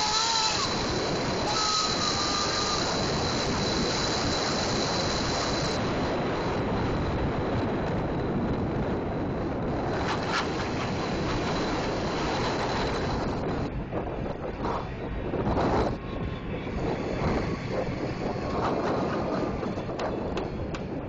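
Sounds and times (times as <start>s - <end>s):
sharp noise: 0.0s - 6.0s
bus engine roaring: 0.0s - 21.0s
road and wind noise: 0.0s - 21.0s.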